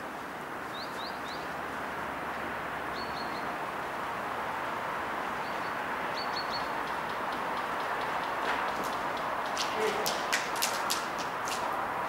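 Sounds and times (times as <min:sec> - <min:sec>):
small bird chirping: 0:05.4 - 0:08.2.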